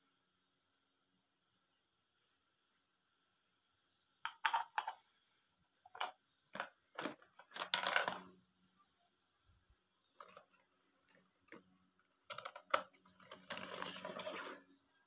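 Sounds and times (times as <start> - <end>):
plastic toy pots clattering: 4.3 - 5.0, 5.9 - 8.4, 10.2 - 14.7.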